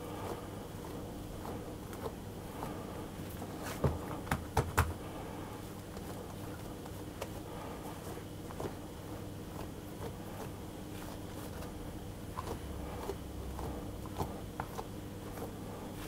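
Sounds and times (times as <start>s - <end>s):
hands handling bread dough: 0.0s - 16.0s.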